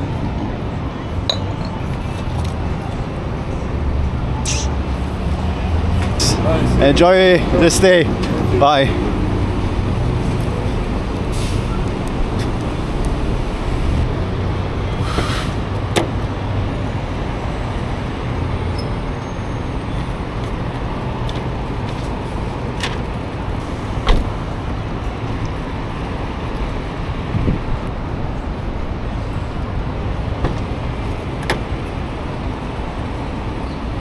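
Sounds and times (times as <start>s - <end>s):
city street traffic: 0.0s - 34.0s
heavy vehicle engine rumbling: 0.0s - 34.0s
short hiss: 4.4s - 4.7s.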